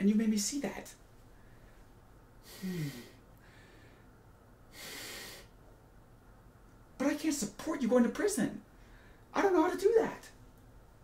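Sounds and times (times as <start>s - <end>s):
man breathing: 1.3s - 5.6s, 8.7s - 9.3s
man sighing: 2.4s - 3.6s.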